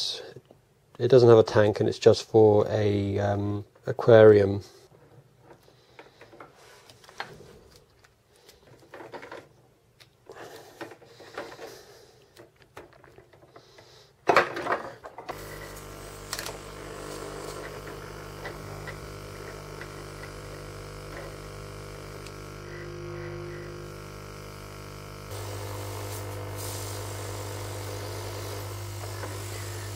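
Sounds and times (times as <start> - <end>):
plastic tubing clicking and rustling: 5.5 - 15.3
air pump humming: 15.3 - 29.9.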